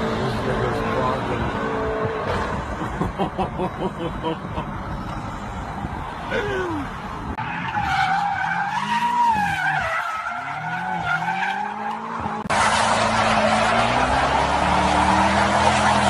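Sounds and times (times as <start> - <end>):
car tyres squealing: 4.7 - 16.0
car engine revving: 7.3 - 16.0.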